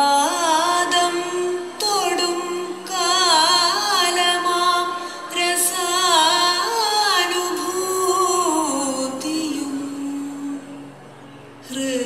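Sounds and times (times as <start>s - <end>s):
woman singing: 0.0s - 10.8s, 11.6s - 12.0s
faint steady drone: 0.0s - 12.0s.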